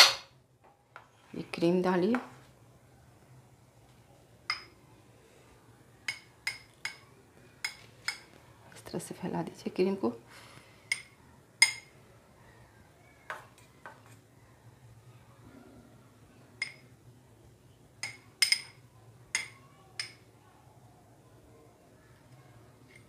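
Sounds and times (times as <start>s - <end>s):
metal spoon clinking glass bowl: 4.5s - 4.8s, 6.1s - 8.3s, 10.9s - 12.0s, 16.6s - 16.9s, 18.0s - 20.2s.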